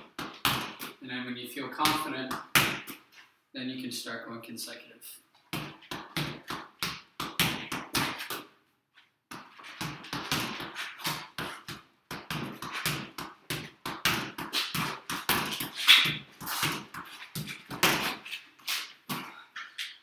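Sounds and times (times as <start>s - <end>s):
ball thudding off head and wall: 0.0s - 1.0s, 1.8s - 3.0s, 5.5s - 8.5s, 9.3s - 18.2s.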